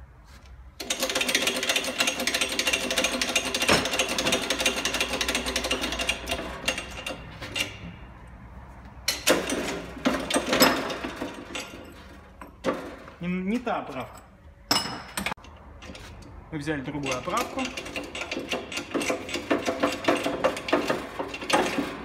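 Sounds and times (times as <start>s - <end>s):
mechanical rattle of shop press: 0.8s - 8.0s, 9.1s - 13.6s, 16.9s - 22.0s
sharp knocks: 3.6s - 4.4s.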